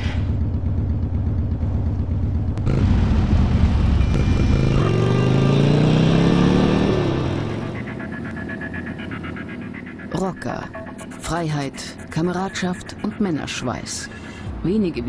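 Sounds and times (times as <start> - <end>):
motorcycle engine idling and revving: 0.0 - 14.8.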